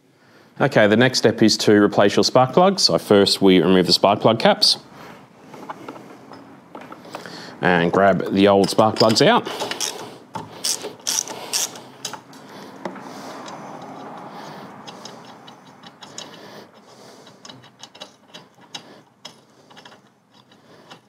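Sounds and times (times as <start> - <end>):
ratchet clicking: 8.7 - 12.3, 13.4 - 21.0.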